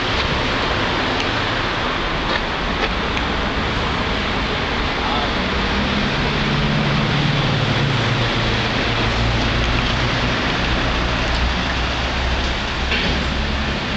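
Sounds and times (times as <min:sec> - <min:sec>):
street ambience hiss: 0:00.0 - 0:13.9.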